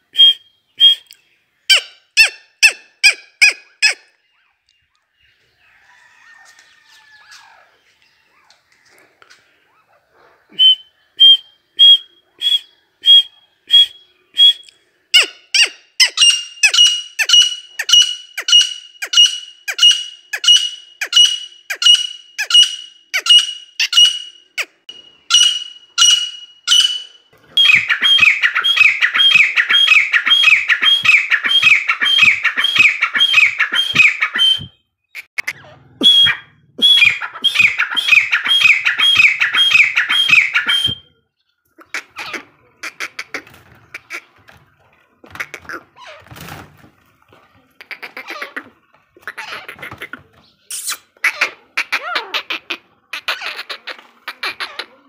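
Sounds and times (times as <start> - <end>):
partridge calling shrill notes: 0.1 - 4.5, 10.6 - 41.2, 50.6 - 51.4.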